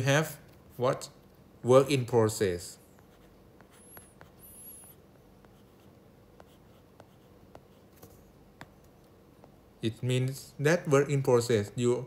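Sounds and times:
faint high squeak: 3.8 - 5.0.

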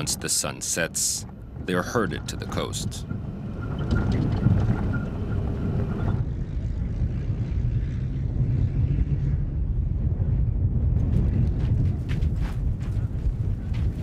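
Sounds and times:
truck engine rumble: 0.0 - 8.8
faint steady whine: 0.0 - 9.4.

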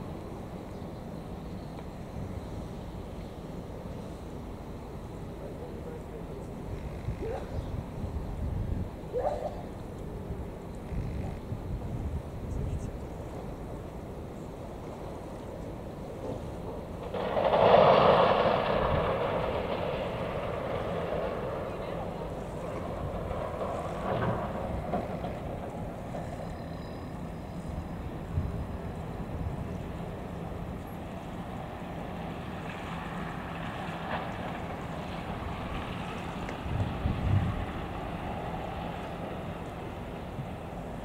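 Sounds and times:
wind: 0.0 - 41.0
surge of rushing noise: 16.1 - 26.2.

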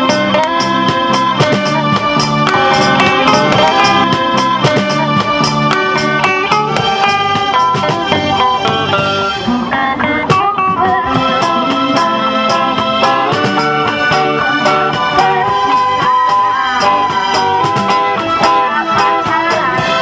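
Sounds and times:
electric bass: 0.0 - 20.0
electric guitar melody: 0.0 - 20.0
keyboard: 0.0 - 20.0
steady drum beat: 0.7 - 8.0.

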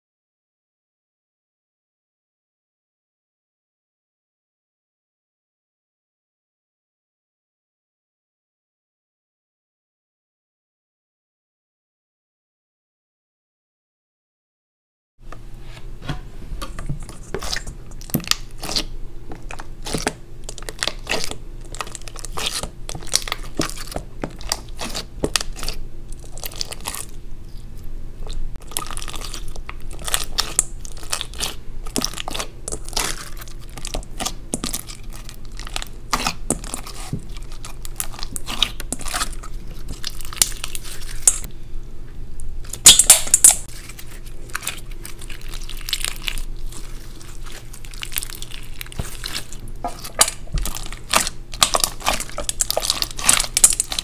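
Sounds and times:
faint steady hum: 15.2 - 54.0
slime squishing and crackling: 16.7 - 27.6, 28.2 - 41.5, 42.6 - 54.0.

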